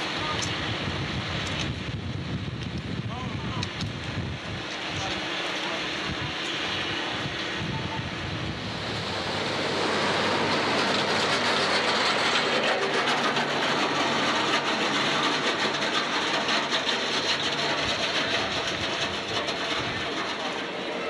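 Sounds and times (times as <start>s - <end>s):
snow groomer tracks clattering: 8.9s - 21.0s.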